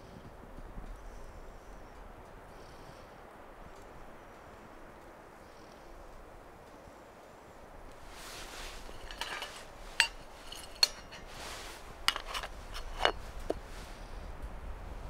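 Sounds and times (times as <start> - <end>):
soft rustling: 3.7 - 14.4
metal kettle lid clinks: 8.8 - 11.4, 12.1 - 13.2.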